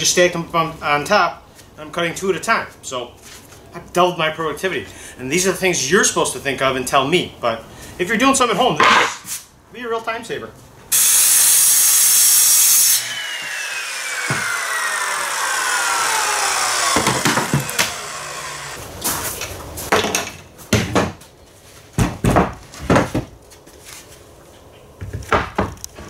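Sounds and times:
circular saw cutting plywood: 10.9 - 18.8
saw blade spinning down: 10.9 - 18.8
knocks and clatters of wood: 16.9 - 18.0, 19.9 - 21.3, 21.9 - 23.4, 25.0 - 26.0.

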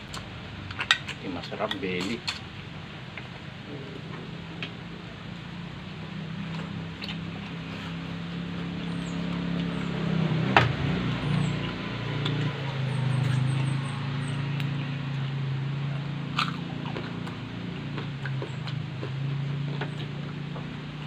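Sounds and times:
people chewing crisp food: 0.0 - 10.1, 11.0 - 21.0
steady low hum: 0.0 - 21.0
sharp crunch: 16.3 - 19.1.

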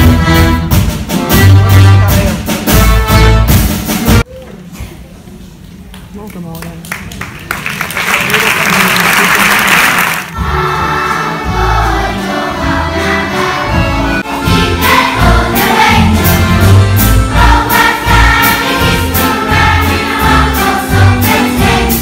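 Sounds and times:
instrumental ensemble with deep bass: 0.0 - 4.2
children's choir singing: 10.4 - 22.0.

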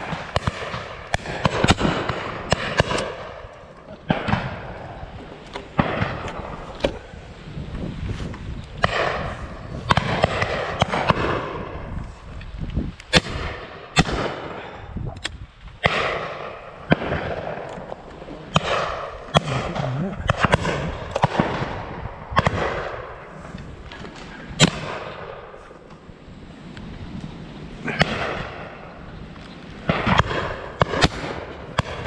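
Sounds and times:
shotgun shots echoing: 0.0 - 7.2, 8.8 - 11.9, 13.1 - 14.8, 15.8 - 23.3, 24.6 - 25.6, 27.9 - 28.8, 29.8 - 32.0.

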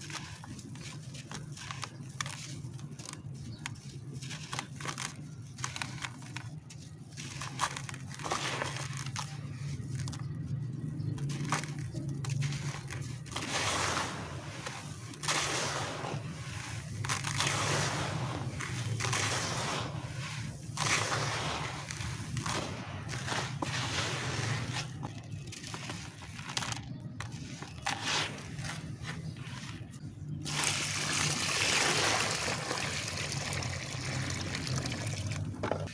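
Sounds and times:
grains trickling: 11.1 - 35.6.

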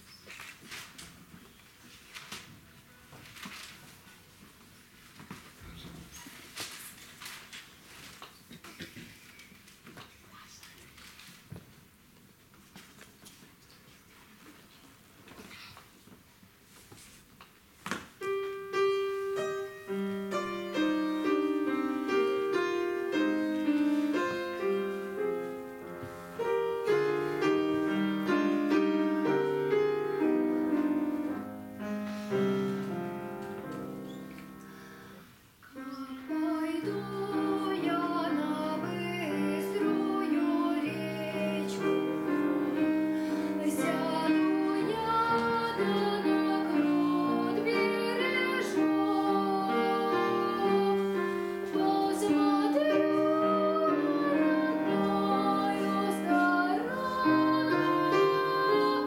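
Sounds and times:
grand piano playing: 18.2 - 35.3, 35.9 - 59.0
girl singing: 35.7 - 59.0.

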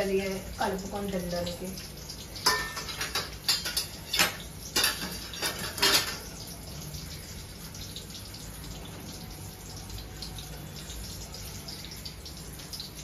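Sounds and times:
metal kitchenware clattering: 2.4 - 6.5.

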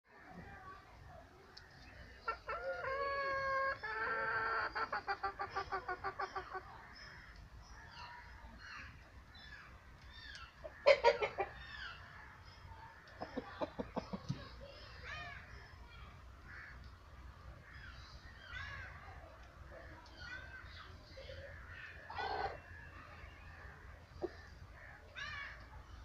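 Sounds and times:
small birds chirping faintly: 0.1 - 26.0
chicken clucking: 1.8 - 7.0, 10.6 - 11.7, 12.9 - 14.8, 22.0 - 22.6.

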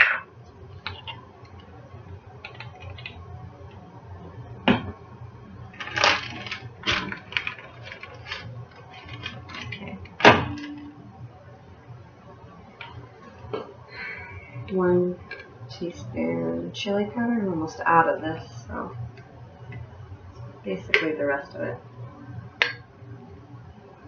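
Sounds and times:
plastic bag crinkling: 5.8 - 10.2.

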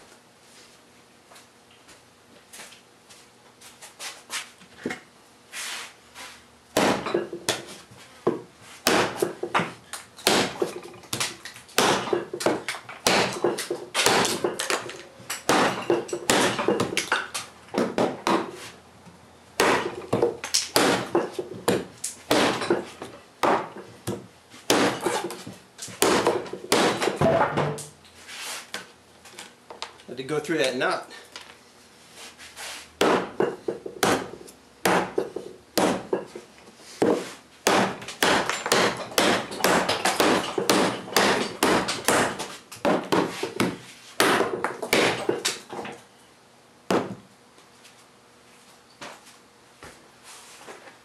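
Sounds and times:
tomahawk chopping wood: 6.7 - 18.6, 19.6 - 27.9, 33.0 - 36.4, 37.0 - 46.0, 46.9 - 47.2.

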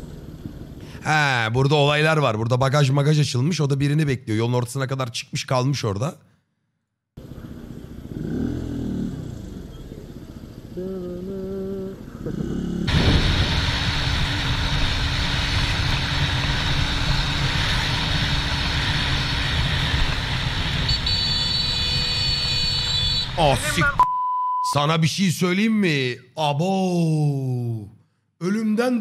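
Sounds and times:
motorcycle engine: 0.0 - 1.0, 7.2 - 23.6
heavy wind noise: 12.9 - 20.9.

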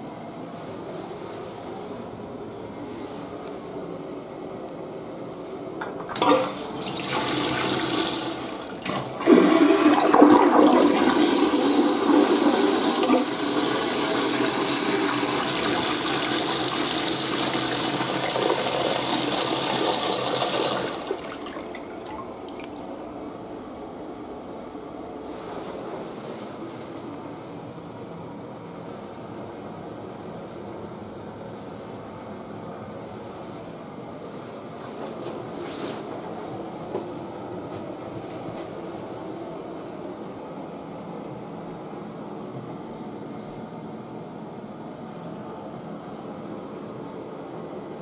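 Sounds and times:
toilet flushing: 6.0 - 23.2.

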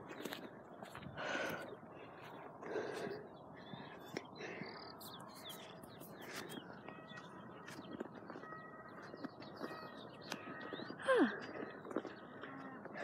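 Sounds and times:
person breathing hard: 1.0 - 6.8
faint bird chirps: 3.1 - 12.8.

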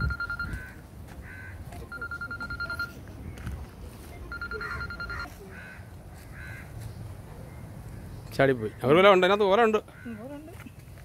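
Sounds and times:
crows cawing: 0.4 - 1.7, 4.6 - 6.9, 8.6 - 9.1, 9.8 - 10.5.

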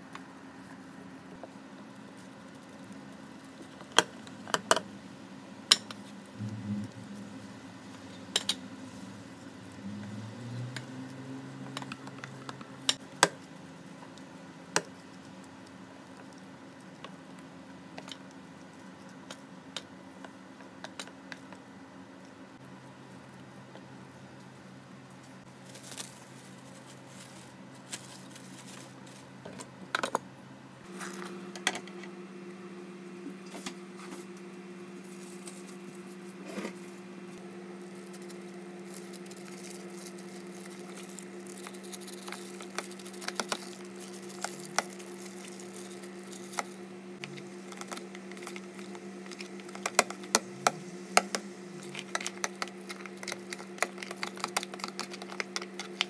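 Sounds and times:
steady low hum: 0.0 - 56.0
plastic bag crinkling: 25.5 - 29.4, 35.0 - 50.4, 51.1 - 56.0.

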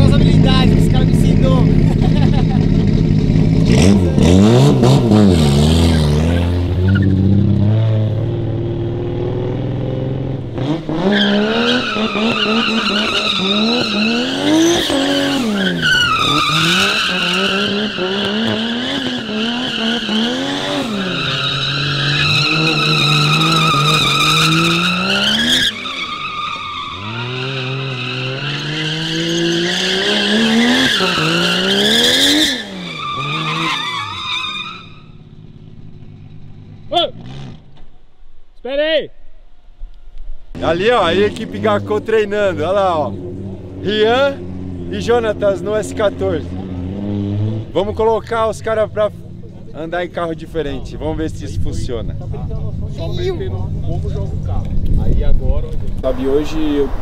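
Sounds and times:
car engine revving: 0.0 - 37.9, 40.6 - 57.0
tyres squealing: 11.0 - 35.2.

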